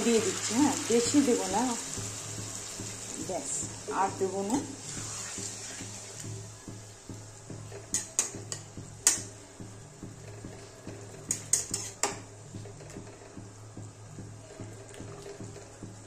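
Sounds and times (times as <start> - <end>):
metal spatula scraping a pan: 4.8 - 6.2, 11.1 - 12.2.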